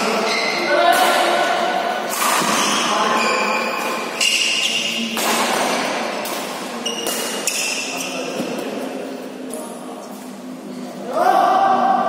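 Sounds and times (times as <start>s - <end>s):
rackets hitting shuttlecock: 0.8s - 2.9s, 3.7s - 8.6s.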